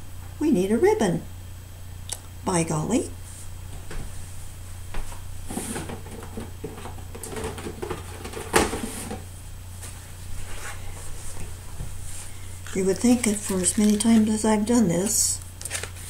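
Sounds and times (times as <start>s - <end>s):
rummaging through craft supplies: 12.6s - 16.0s.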